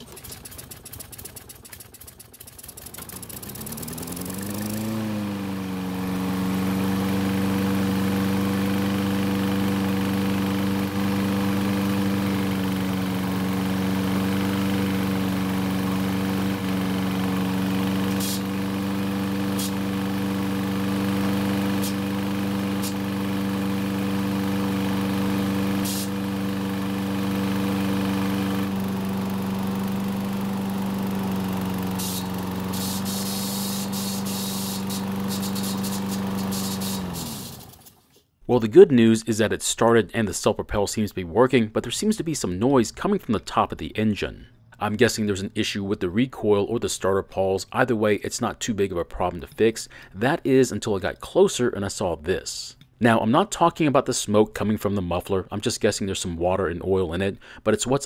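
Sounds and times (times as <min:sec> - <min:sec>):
mower engine running: 0:00.0 - 0:38.1.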